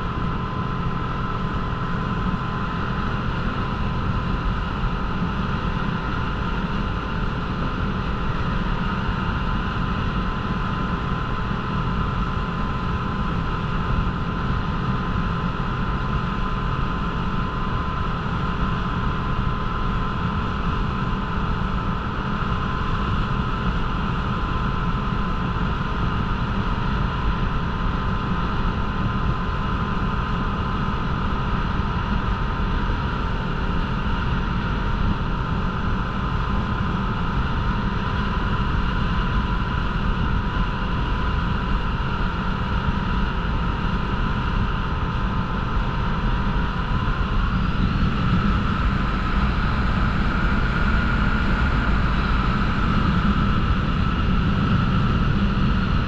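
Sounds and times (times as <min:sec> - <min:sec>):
rushing wind: 0:00.0 - 0:56.0
motorboat engine droning: 0:09.4 - 0:56.0.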